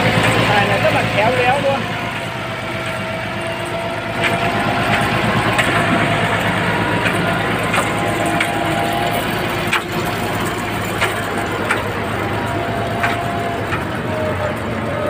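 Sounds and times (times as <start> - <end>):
tractor engine running: 0.0 - 15.0
sharp knocks: 2.2 - 14.0.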